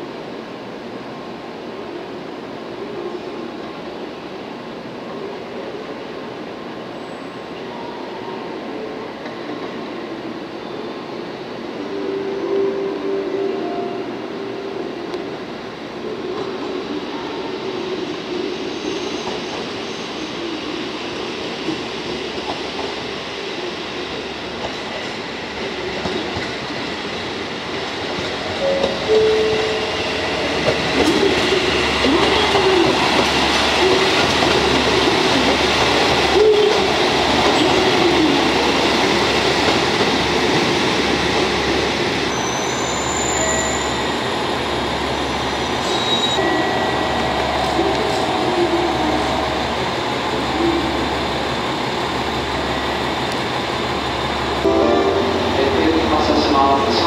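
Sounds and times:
train wheels rumbling on track: 0:15.1 - 0:57.0
train wheels squealing: 0:18.5 - 0:21.3, 0:42.2 - 0:51.2.

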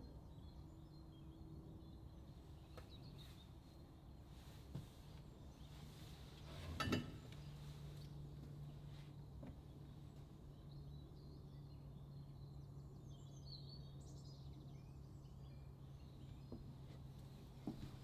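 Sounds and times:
faint bird chirps: 0:00.0 - 0:04.6
steady low hum: 0:00.0 - 0:18.0.

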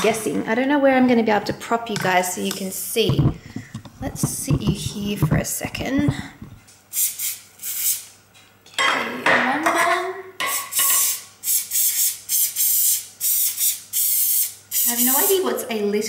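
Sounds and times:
aerosol spray hissing: 0:06.9 - 0:08.1, 0:10.5 - 0:15.4.

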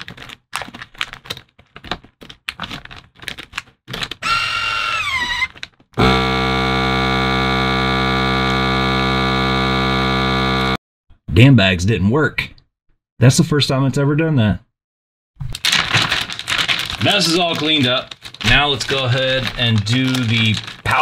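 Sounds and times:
plastic bag rustling and clicking: 0:00.0 - 0:04.2, 0:05.4 - 0:05.9, 0:15.5 - 0:21.0
vacuum sealer pump humming: 0:04.2 - 0:10.8.

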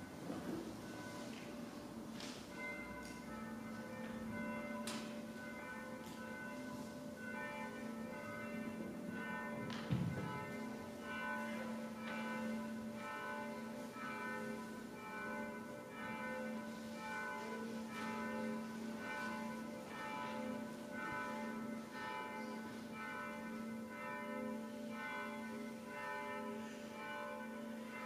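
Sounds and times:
distant church bells ringing: 0:00.0 - 0:28.0.

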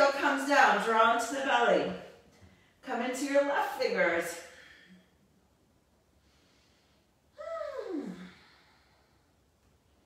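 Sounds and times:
woman sighing: 0:07.4 - 0:08.6.

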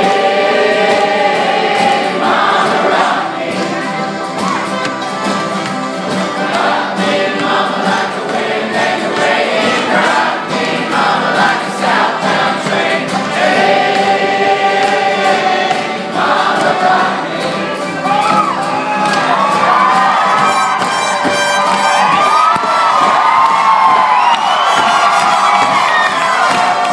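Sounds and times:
many voices singing together: 0:00.0 - 0:21.1
acoustic folk band playing: 0:00.0 - 0:26.9.

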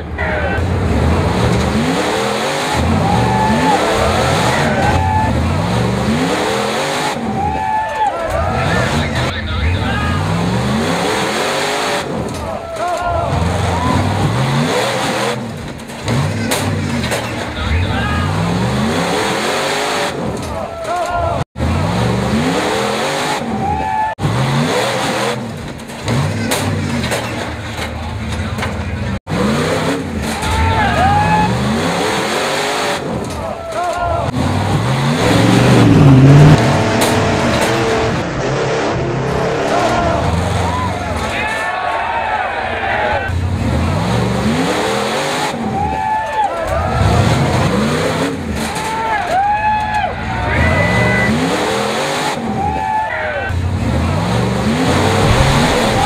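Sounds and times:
car engines revving: 0:00.0 - 0:56.0
vehicle motor revving: 0:00.6 - 0:07.3, 0:34.3 - 0:41.0, 0:53.5 - 0:56.0
tire squeals: 0:01.4 - 0:27.6, 0:29.4 - 0:53.6.

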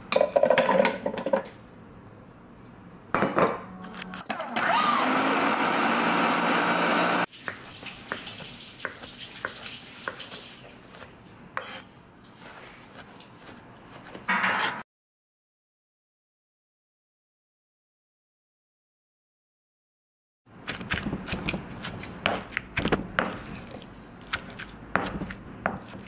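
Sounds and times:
blender running: 0:04.3 - 0:07.3
knife mincing on wooden board: 0:08.8 - 0:14.8, 0:20.6 - 0:26.0.

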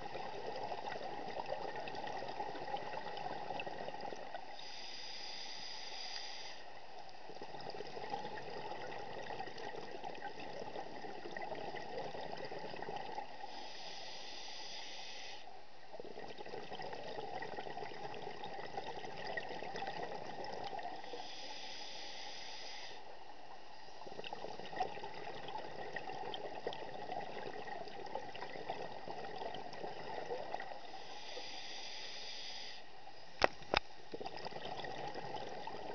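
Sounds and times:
bubbling exhaled air: 0:00.0 - 0:05.3, 0:07.3 - 0:14.4, 0:16.0 - 0:22.2, 0:24.0 - 0:32.8, 0:34.1 - 0:35.9
regulator inhalation hiss: 0:04.6 - 0:06.7, 0:13.5 - 0:15.5, 0:21.0 - 0:23.1, 0:30.9 - 0:33.0.

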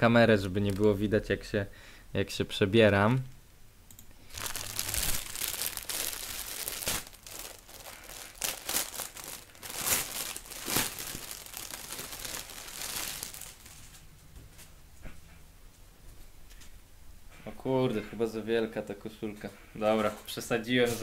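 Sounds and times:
plastic wrapping crinkling: 0:04.3 - 0:14.1.

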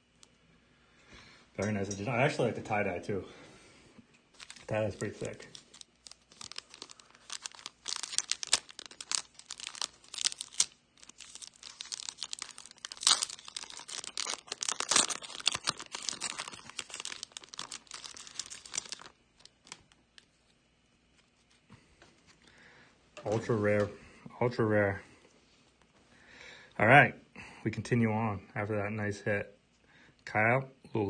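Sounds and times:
foil wrapper tearing and crinkling: 0:04.4 - 0:20.3.

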